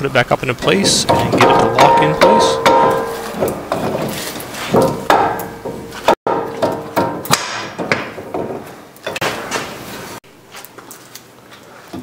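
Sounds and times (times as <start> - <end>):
sharp metal knocks with ring: 1.0 - 3.4.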